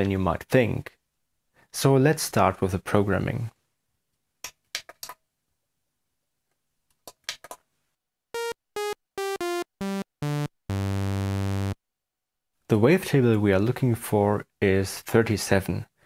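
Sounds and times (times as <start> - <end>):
bright buzzy synthesizer notes: 8.4 - 11.8.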